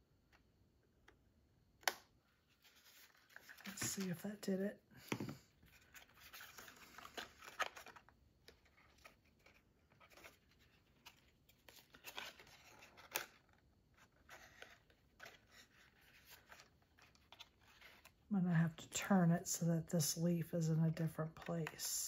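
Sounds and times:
cardstock rustling and clicking: 0:05.7 - 0:18.2.

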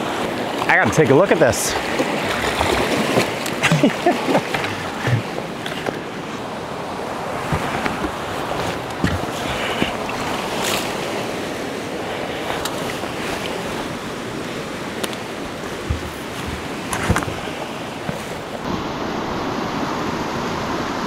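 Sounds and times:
river water rushing: 0:00.0 - 0:21.0
foot splashing into water: 0:01.8 - 0:06.1
knocks and scuffs: 0:15.8 - 0:18.4.

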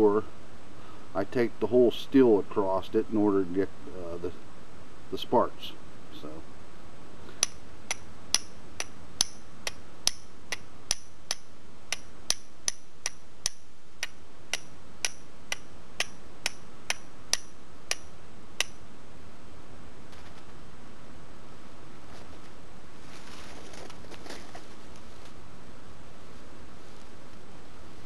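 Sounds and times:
steel striker clicking on flint: 0:07.4 - 0:18.8.

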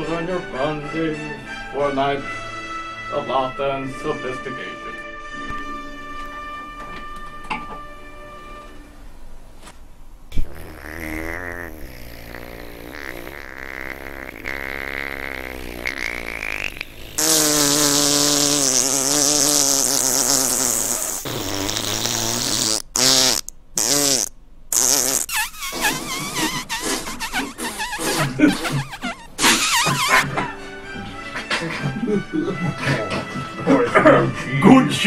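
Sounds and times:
fart noise: 0:10.3 - 0:30.3.

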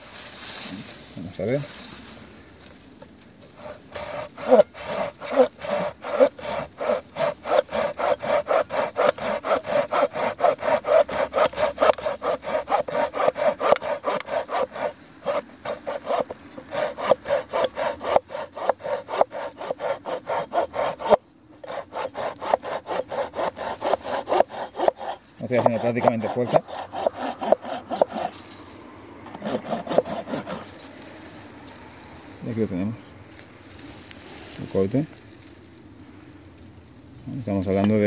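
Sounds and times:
pull saw cutting a branch: 0:03.5 - 0:28.7, 0:29.3 - 0:31.1.

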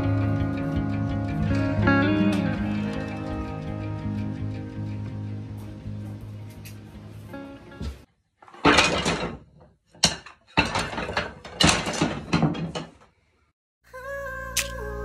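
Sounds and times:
wooden strips clattering: 0:08.4 - 0:13.1.

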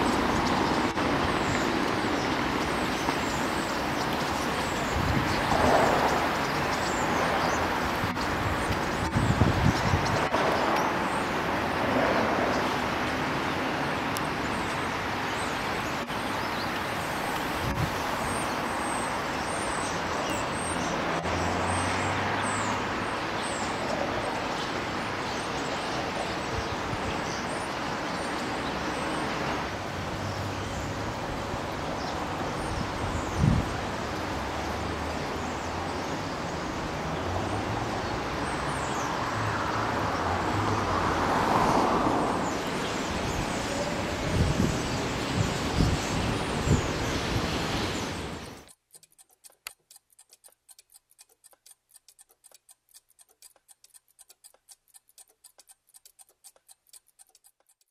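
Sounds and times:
street traffic: 0:00.0 - 0:57.9
vehicle passing: 0:20.5 - 0:23.1, 0:33.8 - 0:45.4.

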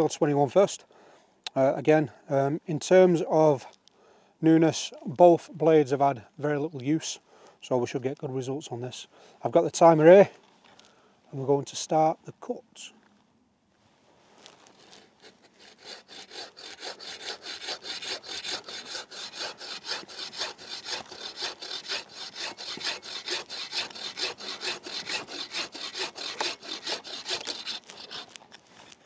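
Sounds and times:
bow saw cutting log: 0:14.7 - 0:28.5.

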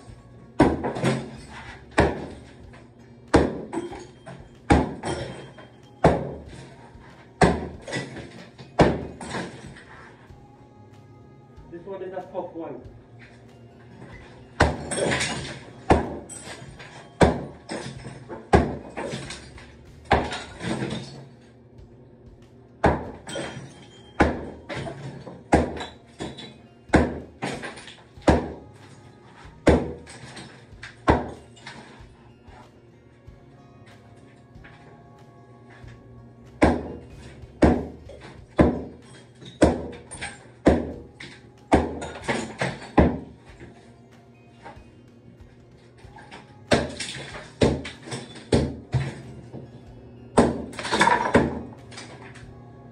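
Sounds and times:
sledgehammer striking wall: 0:00.6 - 0:06.7, 0:07.4 - 0:09.8, 0:14.6 - 0:21.2, 0:22.8 - 0:28.7, 0:29.6 - 0:31.7, 0:36.6 - 0:43.7, 0:46.7 - 0:49.2, 0:50.4 - 0:51.7
cement crumbling: 0:00.6 - 0:10.2, 0:14.0 - 0:21.4, 0:22.9 - 0:32.6, 0:36.6 - 0:43.9, 0:46.2 - 0:49.7.

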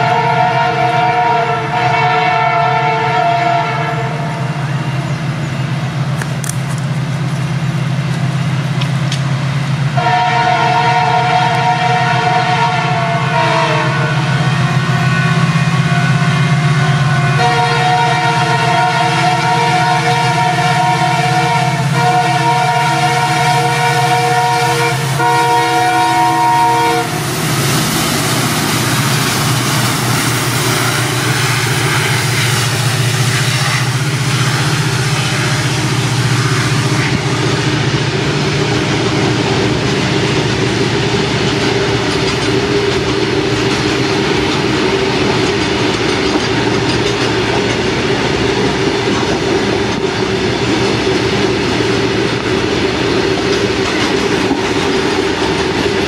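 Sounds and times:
locomotive horn: 0:00.0 - 0:04.6, 0:10.0 - 0:27.5, 0:28.8 - 0:37.8.

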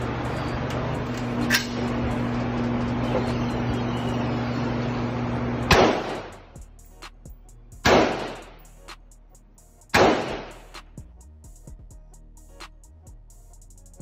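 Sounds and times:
steady low hum: 0:00.0 - 0:14.0
rifle shot echoing indoors: 0:05.7 - 0:06.3, 0:07.8 - 0:08.5, 0:09.9 - 0:10.6.

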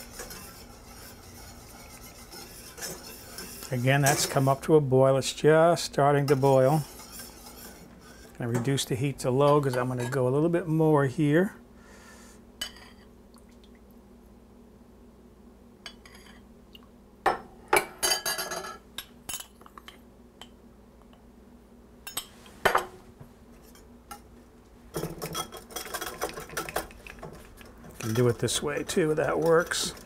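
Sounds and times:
whisk clinking against glass bowl: 0:25.0 - 0:30.0.

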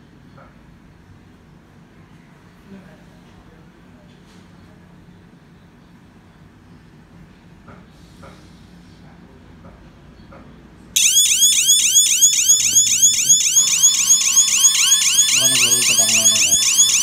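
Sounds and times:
steady alarm tone: 0:11.0 - 0:17.0
warbling alarm siren: 0:11.0 - 0:17.0.

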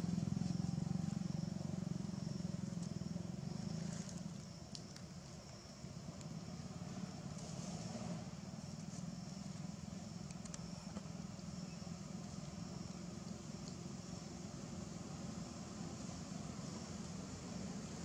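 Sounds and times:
low background rumble: 0:00.0 - 0:18.0
faint high-pitched chirping: 0:09.8 - 0:12.2.

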